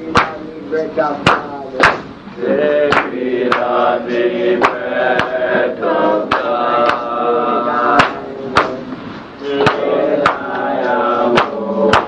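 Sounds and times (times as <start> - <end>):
sharp percussion strikes: 0.0 - 0.5, 1.2 - 2.1, 7.9 - 8.8
steady beat: 0.0 - 12.0
voices chanting long notes: 2.4 - 12.0.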